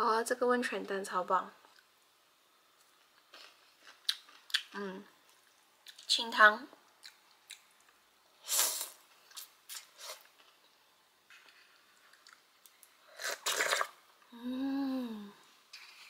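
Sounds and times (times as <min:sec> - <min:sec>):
person slurping noodles: 0:13.1 - 0:14.0
person humming mmm: 0:14.3 - 0:15.4.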